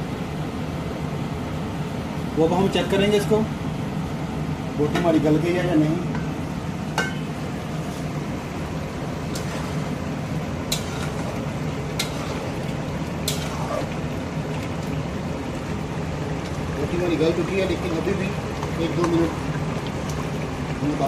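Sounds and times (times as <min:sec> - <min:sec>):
gravy simmering in a pot: 0:06.2 - 0:21.0.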